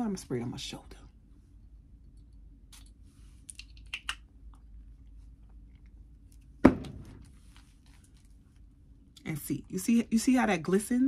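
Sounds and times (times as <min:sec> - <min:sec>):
loud thump: 0:06.6 - 0:07.3.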